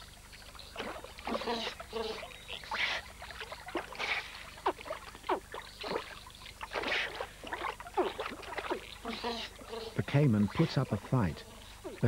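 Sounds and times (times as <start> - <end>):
otters splashing in water: 0.0 - 12.0.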